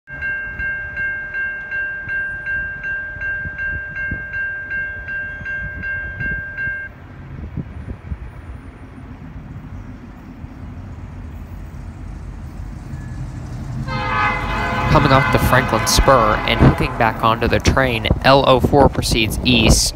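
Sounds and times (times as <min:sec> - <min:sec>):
crossing bell ringing rapidly: 0:00.1 - 0:06.9, 0:11.2 - 0:18.2
diesel train rumbling: 0:00.1 - 0:19.9.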